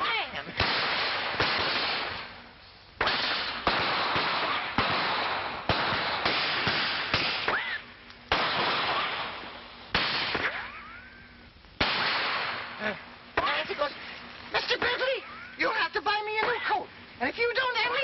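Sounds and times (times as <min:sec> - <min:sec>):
gunshots with hissing echo: 0:00.6 - 0:02.4, 0:03.0 - 0:07.7, 0:08.3 - 0:10.7, 0:11.8 - 0:13.7
ricochet whine: 0:03.0 - 0:13.6.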